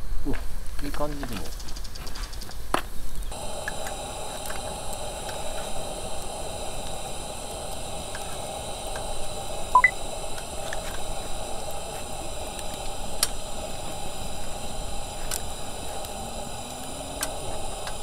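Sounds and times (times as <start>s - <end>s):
wood fire crackling and popping: 2.7s - 18.0s
short rising chirp: 9.7s - 10.0s.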